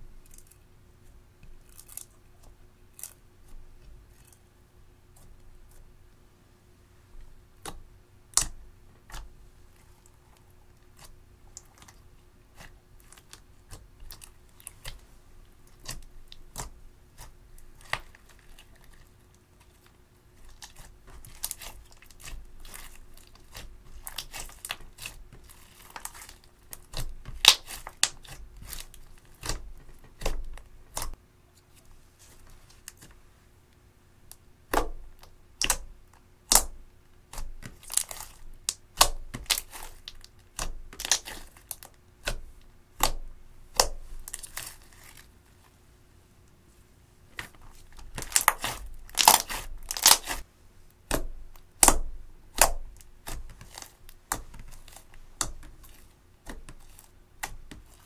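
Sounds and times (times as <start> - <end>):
sticky slime clicks and pops: 51.1 - 52.8.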